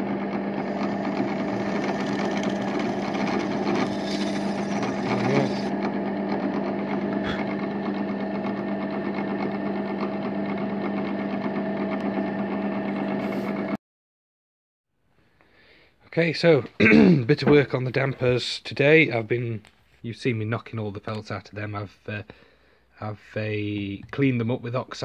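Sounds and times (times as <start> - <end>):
pillar drill motor hum: 0.0 - 13.8.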